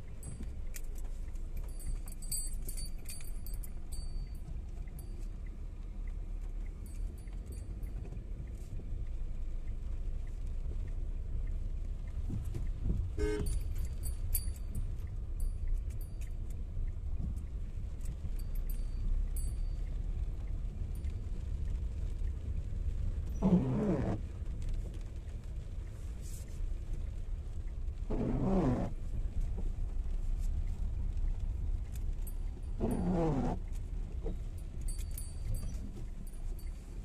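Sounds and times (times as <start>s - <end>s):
light ticks and clicks: 0.0s - 23.6s, 28.9s - 33.0s
car engine and tyres on wet road: 0.0s - 37.0s.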